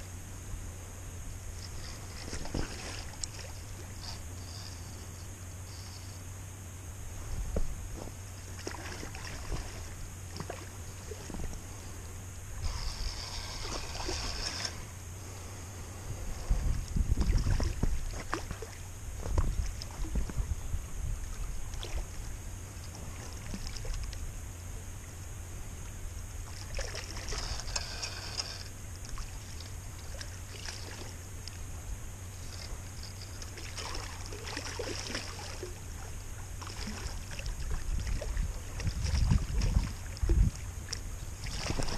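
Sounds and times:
wind rumble on microphone: 0.0 - 5.5, 6.2 - 41.9
river water flowing: 8.3 - 16.6, 25.8 - 31.6, 32.2 - 38.8.

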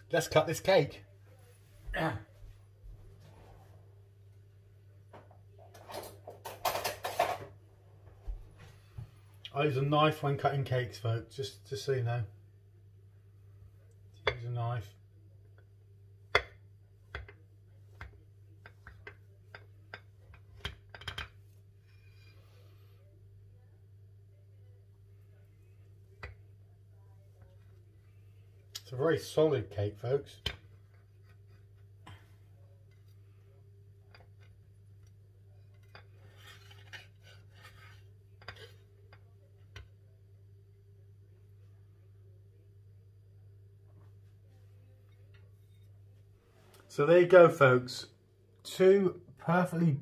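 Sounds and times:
knife scraping: 35.8 - 38.8.

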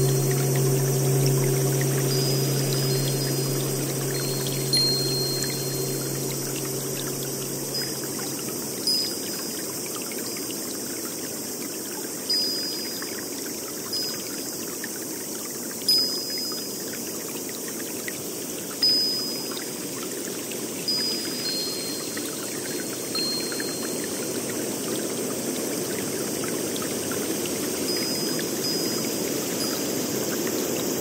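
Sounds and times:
short high note: 0.0 - 9.0
running water: 0.0 - 17.8.

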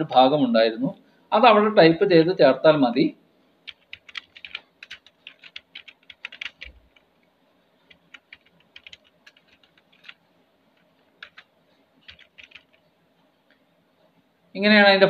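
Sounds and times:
computer keyboard typing: 3.7 - 7.2, 7.9 - 10.2, 10.8 - 12.8.

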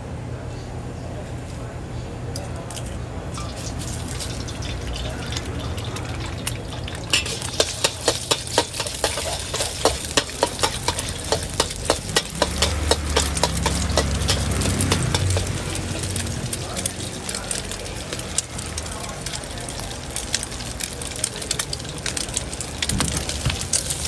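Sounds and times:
egg sizzling in hot oil: 3.4 - 24.0
metal spatula scraping wok: 7.1 - 16.4.

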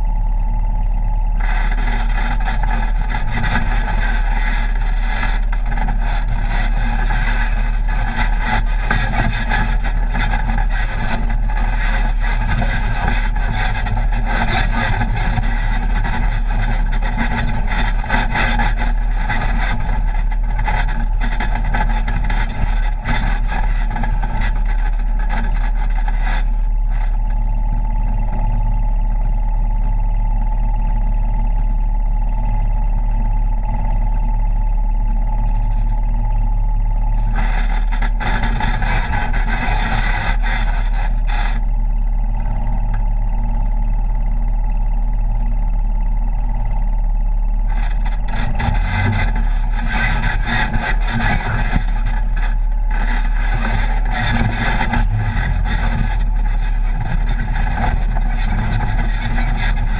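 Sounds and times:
rough trail and tyre noise: 0.0 - 59.9
vehicle engine running: 0.0 - 59.9.

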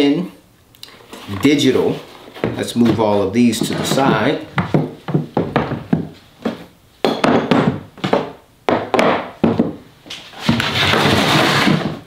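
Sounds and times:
tools scraping on wood: 1.0 - 5.8, 10.3 - 12.0
tools knocking on workbench: 3.6 - 9.8.

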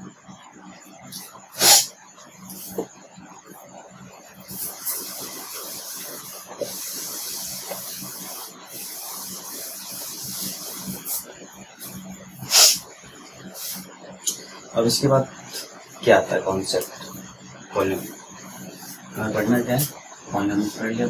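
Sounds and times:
eraser rubbing on whiteboard: 1.1 - 1.9, 4.5 - 12.9.

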